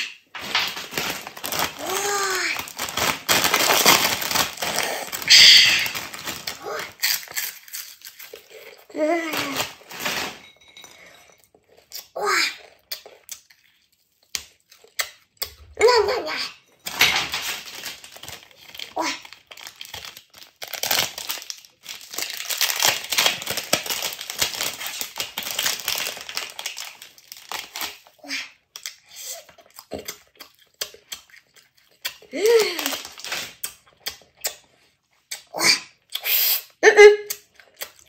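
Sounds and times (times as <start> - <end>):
plastic wrapper crinkling: 0.0 - 10.6, 16.9 - 28.2, 32.1 - 34.6.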